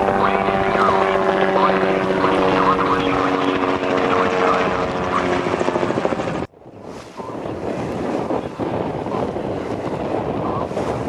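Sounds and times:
helicopter engine and rotor drone: 0.0s - 6.5s.

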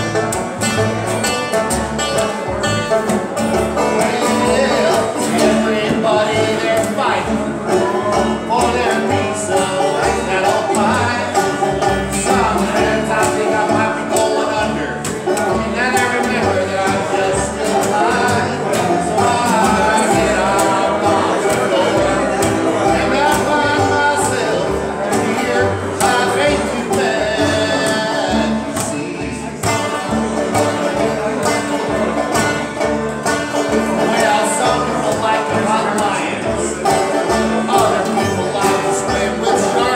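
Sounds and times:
acoustic guitar strumming: 0.0s - 39.9s
banjo picking: 0.0s - 39.9s
bluegrass band playing: 0.0s - 39.9s
plucked double bass: 0.0s - 39.9s
man singing: 2.0s - 32.8s, 33.7s - 39.9s.

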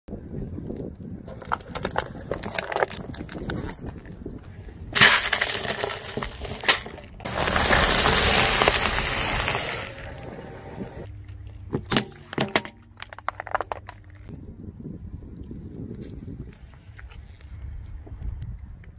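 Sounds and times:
tyre crushing plastic bowl: 1.3s - 4.1s, 5.0s - 10.9s
crunch and crinkle of wrapper: 1.3s - 4.4s, 5.0s - 10.2s
sharp cracks: 5.0s - 10.9s.

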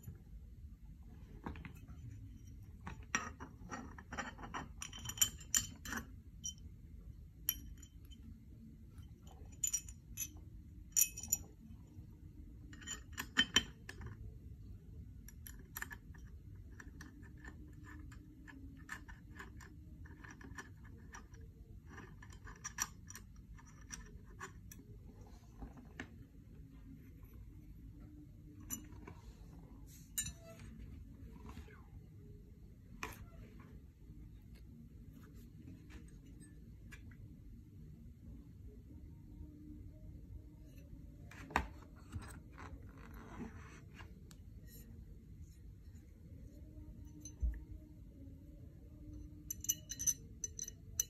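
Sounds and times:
metal clinks of allen key: 49.5s - 51.0s.

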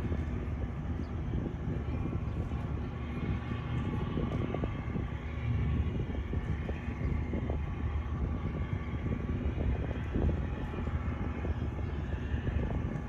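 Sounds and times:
boat diesel engines droning: 0.0s - 13.0s.

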